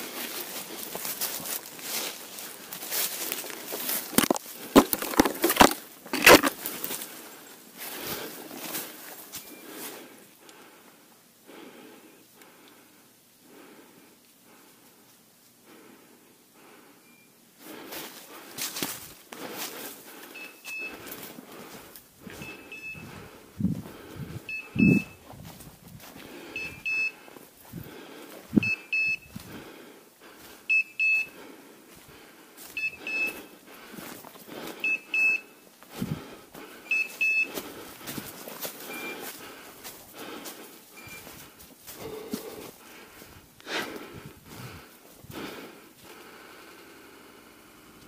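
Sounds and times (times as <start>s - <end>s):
walking through dry leaves: 0.0s - 10.1s, 17.6s - 24.5s, 25.1s - 26.6s, 35.8s - 43.4s
short high beeps: 20.4s - 20.9s, 22.4s - 23.1s, 24.5s - 25.2s, 26.6s - 27.2s, 28.6s - 29.3s, 30.7s - 31.3s, 32.8s - 33.4s, 34.8s - 35.5s, 36.9s - 37.5s, 38.9s - 39.2s, 41.0s - 41.2s.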